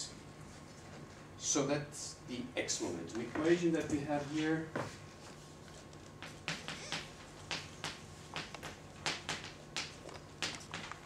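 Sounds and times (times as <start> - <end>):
faint room hum: 0.0 - 11.0
chalk tapping and scratching: 3.2 - 11.0.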